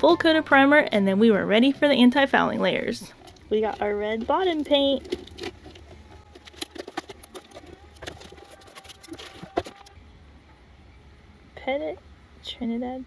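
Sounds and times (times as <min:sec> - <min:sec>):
cardboard box rustling and crinkling: 0:03.1 - 0:09.9.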